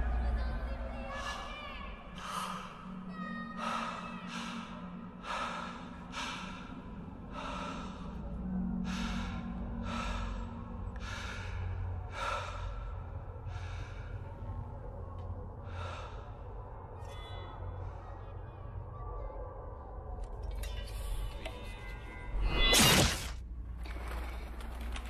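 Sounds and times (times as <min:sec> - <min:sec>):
low droning music: 0:00.0 - 0:25.0
man breathing heavily: 0:02.1 - 0:17.0.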